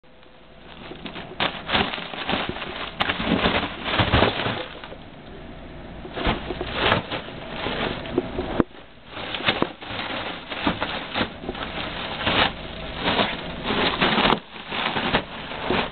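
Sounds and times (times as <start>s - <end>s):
dog scuffing balloon: 6.1s - 15.9s.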